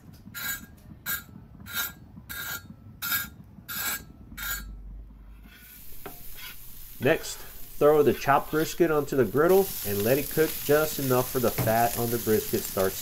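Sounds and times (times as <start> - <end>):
blade scraping crispy bread: 7.8 - 13.0.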